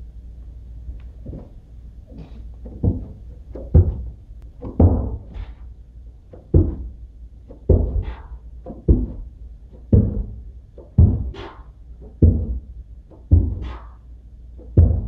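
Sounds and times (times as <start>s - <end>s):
hands thumping on carpeted stairs: 1.2s - 5.5s, 6.3s - 9.3s, 9.9s - 11.4s, 12.1s - 13.8s, 14.6s - 15.0s.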